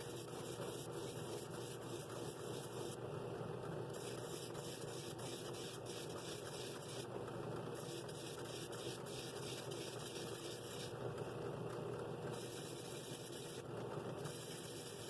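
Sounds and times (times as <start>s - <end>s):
drill press sanding wood: 12.4s - 13.6s.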